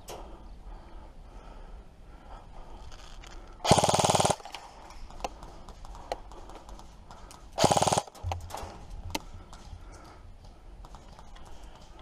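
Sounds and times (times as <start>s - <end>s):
airsoft gun full-auto bursts: 3.6s - 4.6s, 7.6s - 8.2s.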